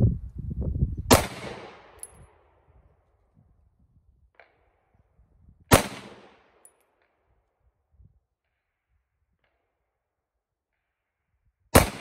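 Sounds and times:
pistol shots with echo: 0:01.1 - 0:02.1, 0:05.7 - 0:06.7, 0:11.7 - 0:12.0.

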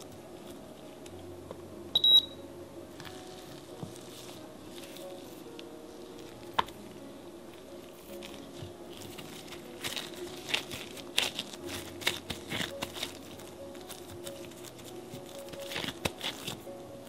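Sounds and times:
disposable gloves crinkling: 0:03.0 - 0:06.9, 0:07.8 - 0:17.0
hands patting cookie dough: 0:08.1 - 0:16.7.

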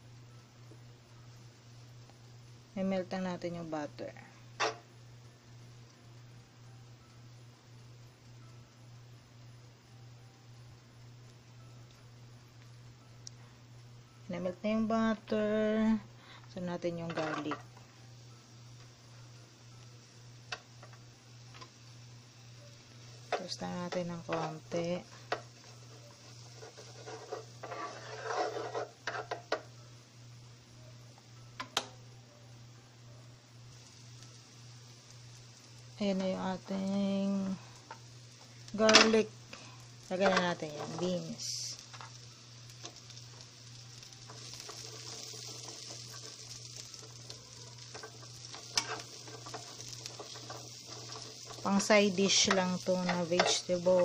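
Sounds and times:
garlic frying in butter: 0:00.0 - 0:54.0
tongs scraping pan: 0:17.0 - 0:17.6, 0:23.3 - 0:29.6, 0:40.1 - 0:41.2, 0:44.2 - 0:54.0
tongs clicking against pan: 0:47.8 - 0:53.9.

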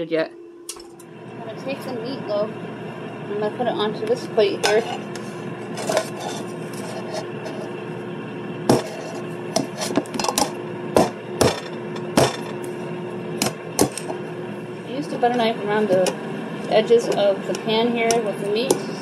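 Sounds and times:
knife scraping metal loaf pan: 0:04.6 - 0:07.7, 0:08.7 - 0:10.1.

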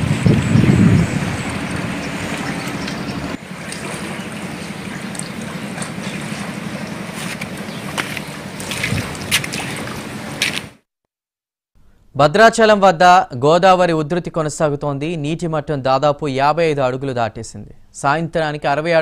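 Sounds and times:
wind noise on microphone: 0:00.0 - 0:03.4, 0:07.3 - 0:10.7
floodwater rushing and sloshing: 0:00.0 - 0:10.8
sharp splashes: 0:00.0 - 0:10.8.

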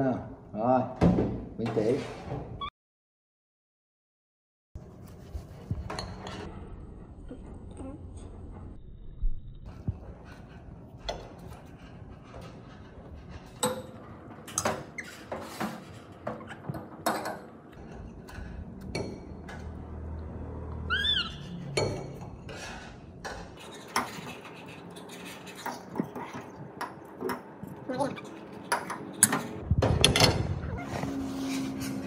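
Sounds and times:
monkey squeaking: 0:20.9 - 0:21.8.

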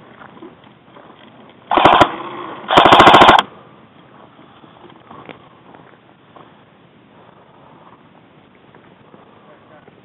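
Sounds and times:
airsoft gun full-auto bursts: 0:01.7 - 0:03.5.

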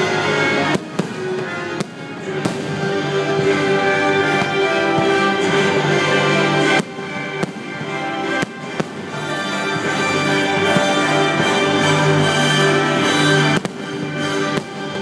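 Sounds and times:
fireworks bangs: 0:00.0 - 0:15.0
music with long held notes: 0:00.0 - 0:15.0.

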